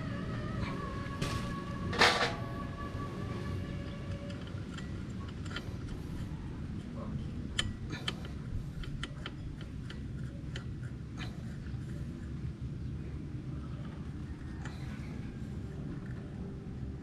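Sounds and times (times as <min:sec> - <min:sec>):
light metal clicks and ticks: 0:03.9 - 0:12.1.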